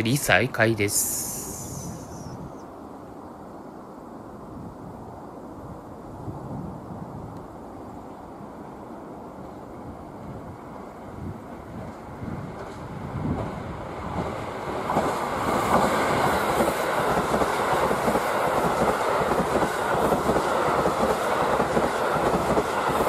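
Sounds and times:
diesel train engines running: 0:00.0 - 0:02.4
train wheels clattering over rails: 0:11.7 - 0:23.0.

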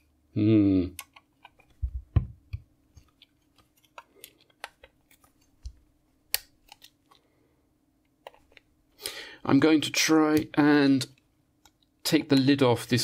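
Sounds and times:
small clicks and taps: 0:00.9 - 0:07.2.

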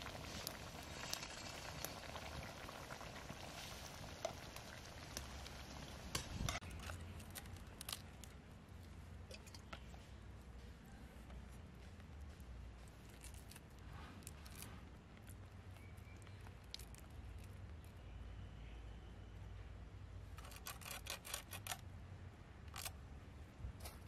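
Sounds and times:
curry bubbling in a pot: 0:00.0 - 0:07.5
fire crackling: 0:00.0 - 0:09.6.

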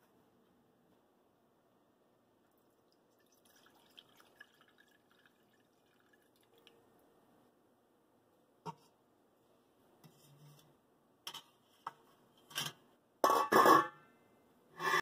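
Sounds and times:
water trickling into pot: 0:02.5 - 0:06.8.

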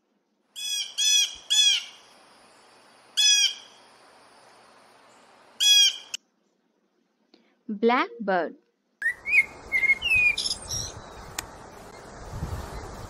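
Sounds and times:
faint steady hiss: 0:00.0 - 0:13.0
blue jay harsh calls: 0:00.6 - 0:02.1, 0:03.2 - 0:03.8, 0:05.6 - 0:06.2, 0:09.0 - 0:10.9.

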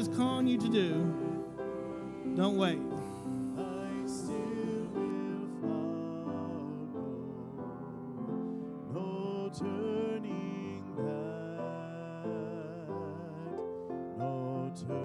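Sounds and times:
church organ: 0:00.0 - 0:15.0
piano: 0:00.0 - 0:15.0.

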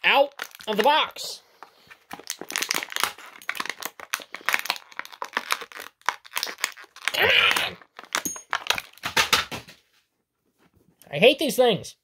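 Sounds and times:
plastic bag crinkling and tearing: 0:00.0 - 0:09.5.

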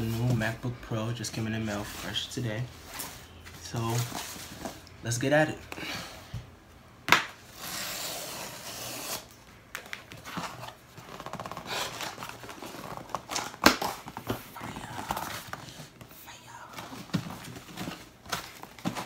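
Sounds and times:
cardboard flaps scraping and rustling: 0:01.3 - 0:04.8, 0:10.0 - 0:19.0
box cutter slitting packing tape: 0:07.5 - 0:09.4.

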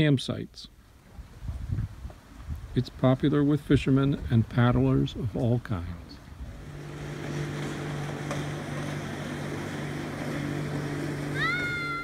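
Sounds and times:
wind: 0:00.0 - 0:12.0
water noise: 0:06.1 - 0:12.0
boat motor running: 0:06.4 - 0:12.0.

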